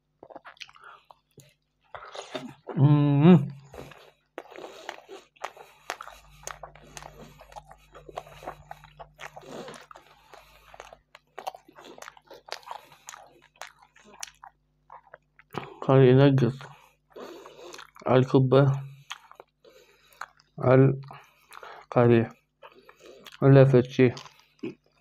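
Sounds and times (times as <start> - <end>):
chewing and biting food: 0.2 - 2.8, 3.6 - 15.8, 16.6 - 18.1, 18.9 - 23.4, 24.1 - 25.0.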